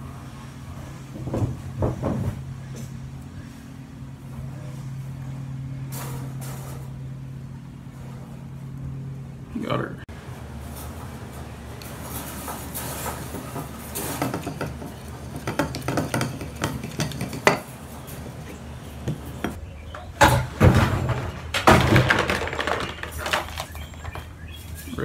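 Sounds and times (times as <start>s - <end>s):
plastic tackle box clattering: 20.8s - 24.2s.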